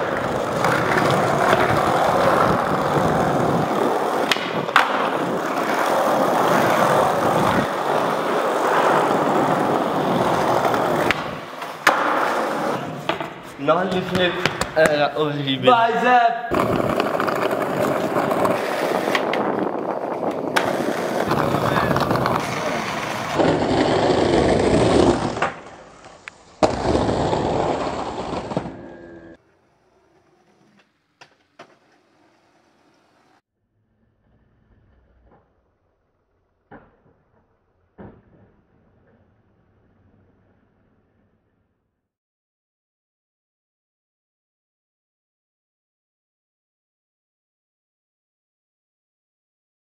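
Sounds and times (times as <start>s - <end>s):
skateboard landing clack: 0.0s - 5.9s, 10.3s - 15.0s, 16.5s - 23.8s, 24.9s - 28.8s, 30.2s - 33.4s, 36.7s - 39.3s
skateboard wheels rolling on tiles: 0.0s - 15.1s, 16.5s - 41.7s.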